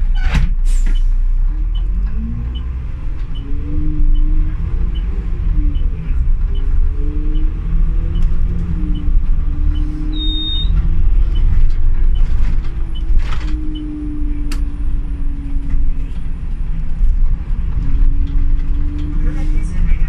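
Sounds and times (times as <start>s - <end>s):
bus engine and road rumble: 0.0s - 20.0s
drivetrain whine: 1.4s - 20.0s
short high beep: 10.1s - 10.8s.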